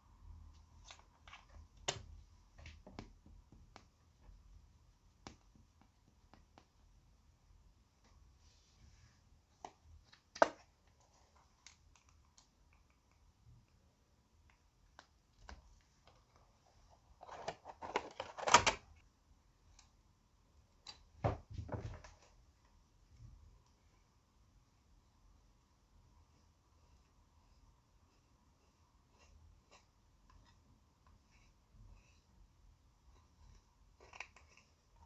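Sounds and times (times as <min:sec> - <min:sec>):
plastic clacking and rustling: 0:17.2 - 0:19.0.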